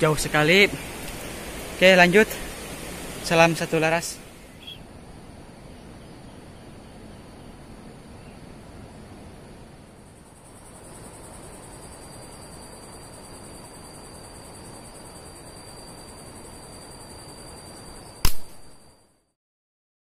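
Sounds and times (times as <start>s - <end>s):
insects droning: 0.0s - 19.4s
air rifle shot: 18.2s - 18.8s.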